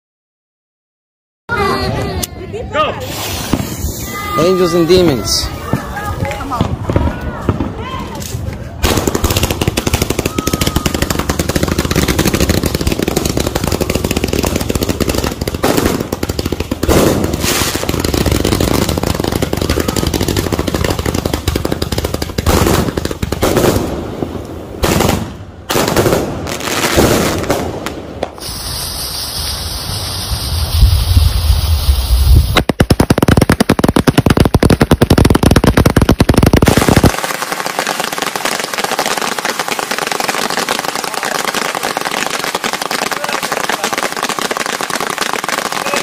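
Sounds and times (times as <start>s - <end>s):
fireworks barrage: 2.9s - 46.0s
lit fuse hissing: 28.4s - 32.6s.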